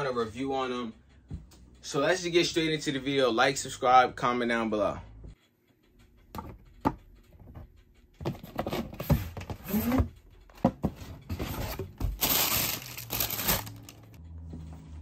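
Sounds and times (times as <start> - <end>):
tissue paper crinkling: 11.6 - 14.2.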